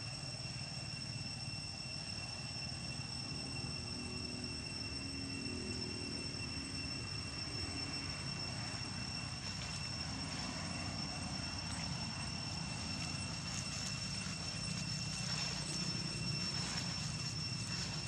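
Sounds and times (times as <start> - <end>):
high-pitched whine: 0.0 - 18.0
faint engine hum: 2.2 - 18.0
distant traffic rumble: 8.4 - 18.0.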